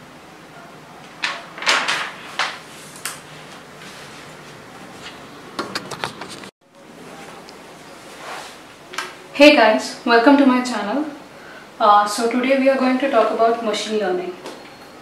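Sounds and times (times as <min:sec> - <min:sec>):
steady room hiss: 0:00.0 - 0:15.0
paper scraping on drawing board: 0:01.6 - 0:06.5.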